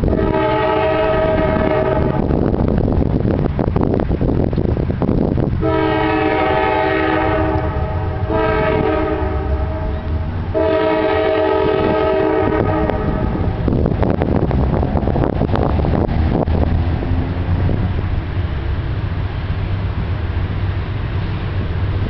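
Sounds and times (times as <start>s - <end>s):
locomotive air horn blasts: 0.0s - 2.4s, 5.6s - 13.7s
low rumble of train: 0.0s - 22.0s.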